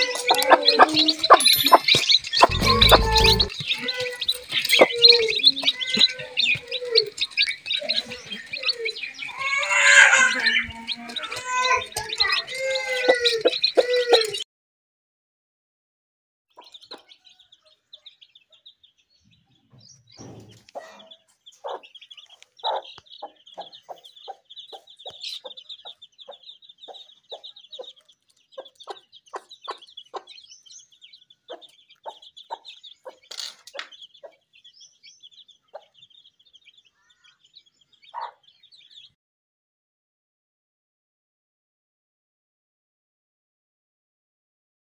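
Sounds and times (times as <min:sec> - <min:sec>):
chicks peeping: 0:00.0 - 0:14.4, 0:16.5 - 0:39.2
hen clucking: 0:00.0 - 0:14.4, 0:20.4 - 0:30.5, 0:38.0 - 0:38.5.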